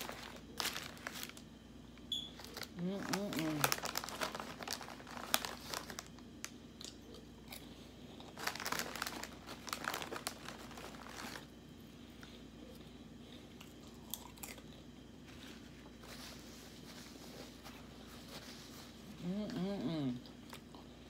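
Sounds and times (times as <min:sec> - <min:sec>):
crinkling and crunching clicks: 0:02.4 - 0:11.5
chewing food: 0:12.2 - 0:15.1.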